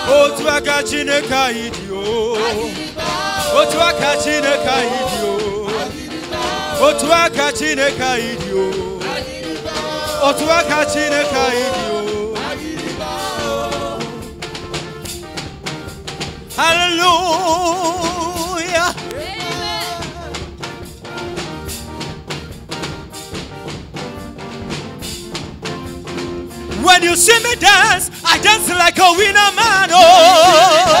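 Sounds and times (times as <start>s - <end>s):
gospel singers with band: 0.0s - 15.5s, 16.5s - 20.9s, 26.8s - 31.0s.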